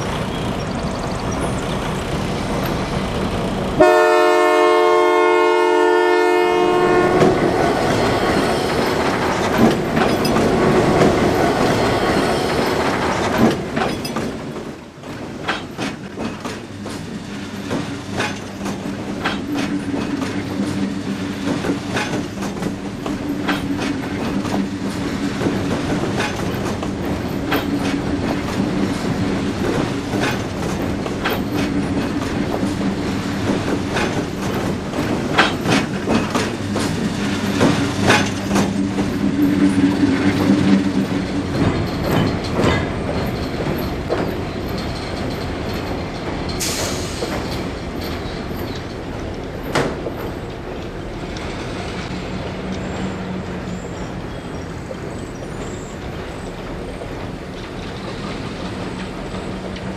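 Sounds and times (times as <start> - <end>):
train wheels clicking over rail joints: 0.0 - 59.9.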